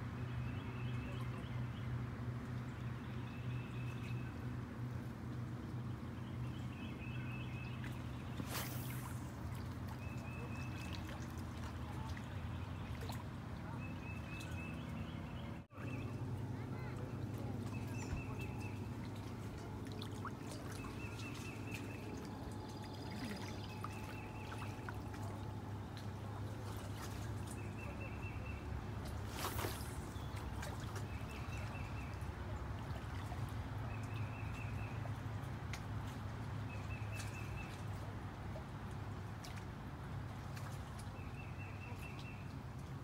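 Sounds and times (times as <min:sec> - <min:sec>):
small waves lapping: 0:00.5 - 0:43.0
brief swish: 0:08.4 - 0:09.3, 0:29.3 - 0:30.0.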